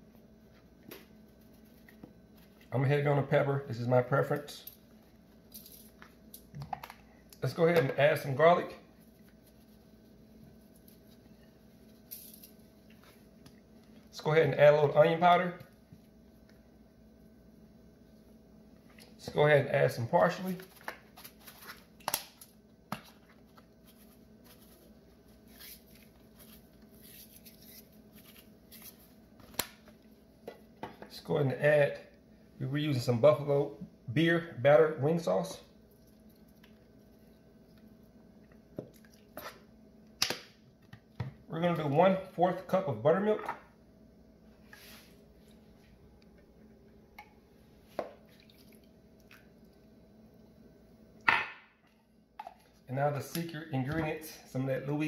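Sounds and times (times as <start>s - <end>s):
liquid dripping and splatting: 35.9s - 37.4s, 38.5s - 39.4s, 48.2s - 49.8s.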